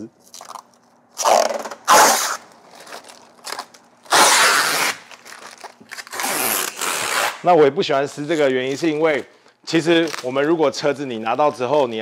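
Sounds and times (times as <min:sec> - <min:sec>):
plastic film crinkling: 0:00.2 - 0:12.0
plastic film ripping: 0:00.3 - 0:10.6.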